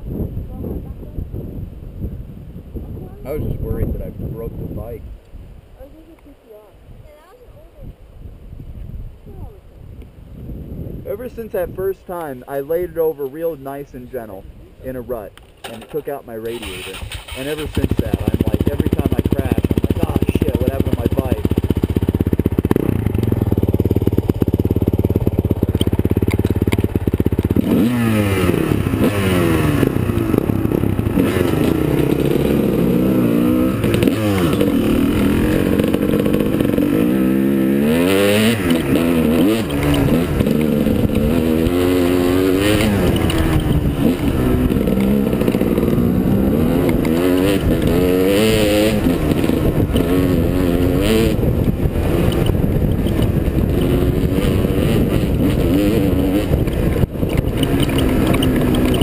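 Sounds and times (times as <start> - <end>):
dirt bike engine revving: 15.6 - 59.0.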